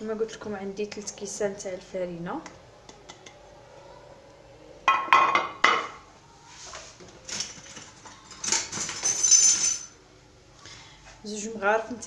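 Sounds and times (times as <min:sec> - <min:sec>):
utensils clinking against dishes: 0:07.2 - 0:10.0.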